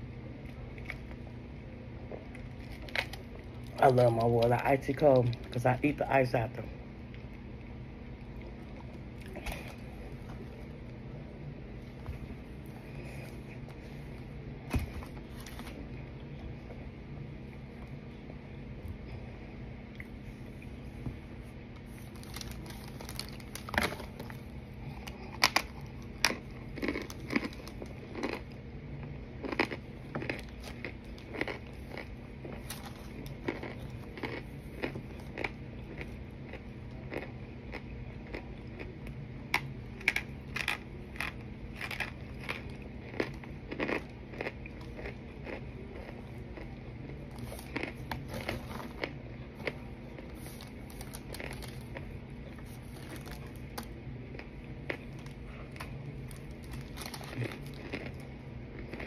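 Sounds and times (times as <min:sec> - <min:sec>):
low steady hum: 0:00.0 - 0:59.0
person chewing crunchy food: 0:02.0 - 0:05.6, 0:07.1 - 0:11.0, 0:21.7 - 0:59.0.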